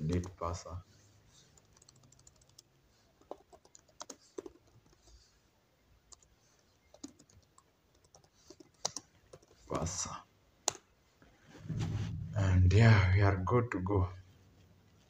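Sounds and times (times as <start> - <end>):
typing on keyboard: 1.6 - 5.1, 6.1 - 6.3, 6.9 - 9.6.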